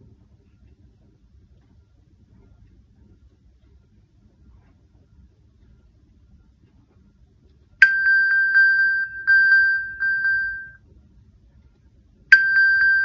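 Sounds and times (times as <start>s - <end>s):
pulsing high chime alert: 7.8s - 10.8s, 12.4s - 13.0s.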